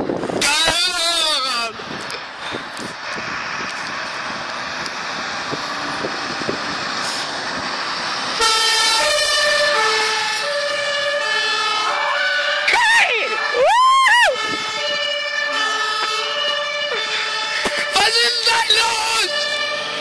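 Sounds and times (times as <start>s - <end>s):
fire engine approaching: 0.0s - 20.0s
two-tone siren: 8.3s - 20.0s.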